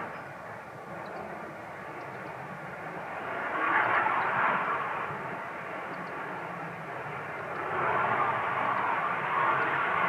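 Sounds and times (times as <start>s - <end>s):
fighter jet flying past: 2.7s - 10.0s.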